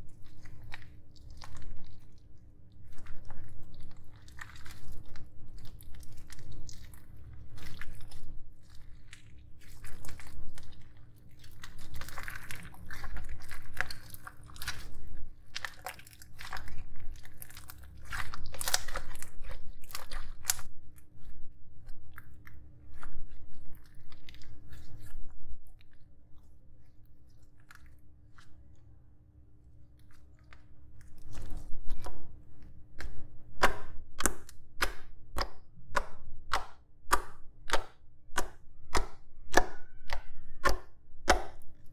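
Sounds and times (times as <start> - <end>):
slime being squished by hand: 0.0 - 28.7, 29.9 - 41.9
sticky slaps of slime on table: 33.0 - 41.6.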